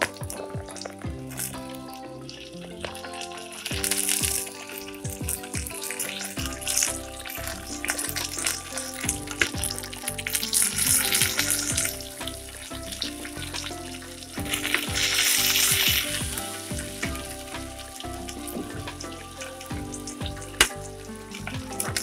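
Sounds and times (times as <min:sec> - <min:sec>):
vegetables sizzling in hot oil: 0:05.8 - 0:21.8.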